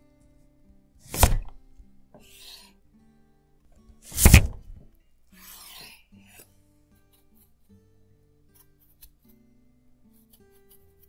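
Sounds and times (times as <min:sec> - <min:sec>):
blade scraping on wood: 0:01.1 - 0:01.6, 0:02.2 - 0:02.8, 0:04.1 - 0:06.5
knife chopping on wooden board: 0:01.1 - 0:01.6, 0:04.1 - 0:04.8.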